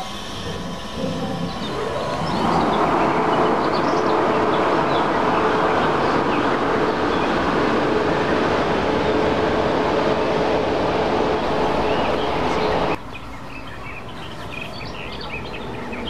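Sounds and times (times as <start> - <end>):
steady hum: 0.0 - 13.1
train running past: 0.0 - 16.0
birds chirping faintly: 0.4 - 16.0.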